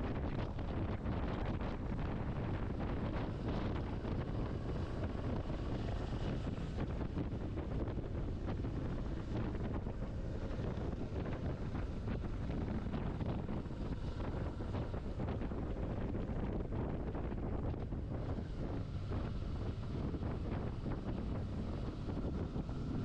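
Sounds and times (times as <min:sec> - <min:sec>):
wind buffeting microphone: 0:00.0 - 0:23.0.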